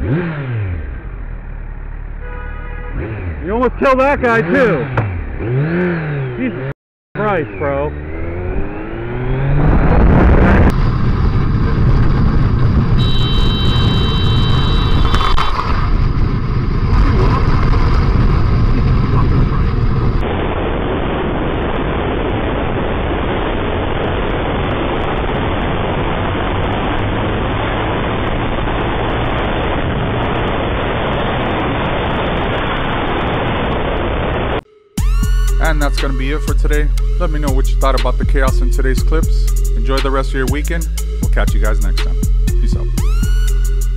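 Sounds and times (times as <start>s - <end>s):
motorcycle engine revving: 0.0s - 34.1s
wind rush: 8.1s - 34.6s
high steady tone: 13.0s - 15.4s, 34.6s - 43.9s.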